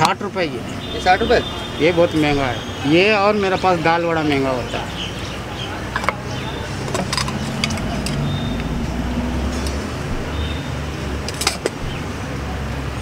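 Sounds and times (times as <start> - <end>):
vehicle engine rumbling: 0.0 - 13.0.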